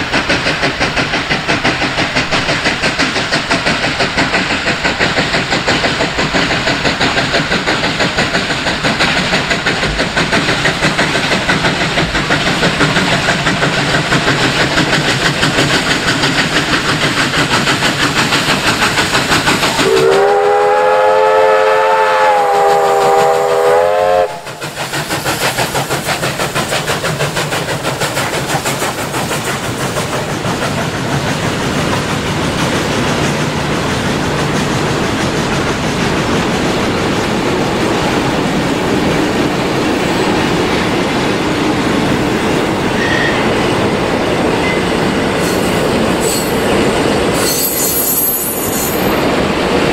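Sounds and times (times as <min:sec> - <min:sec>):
steam locomotive exhaust chuffs: 0:00.0 - 0:49.9
steam whistle: 0:19.8 - 0:24.6, 0:43.0 - 0:43.5, 0:47.3 - 0:49.2.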